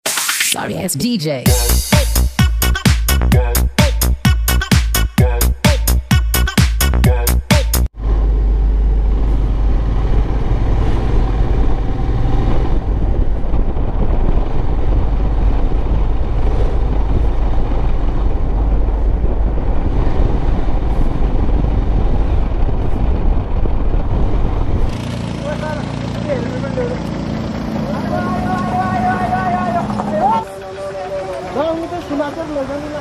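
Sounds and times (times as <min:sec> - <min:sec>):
motorcycle engine: 0:07.9 - 0:33.0
wind rumble on microphone: 0:09.0 - 0:25.4.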